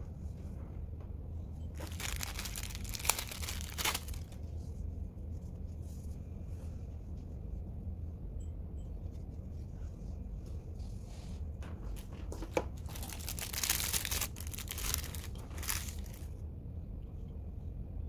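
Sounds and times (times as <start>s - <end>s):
plastic wrapping crinkling: 1.8s - 4.4s, 12.5s - 16.3s.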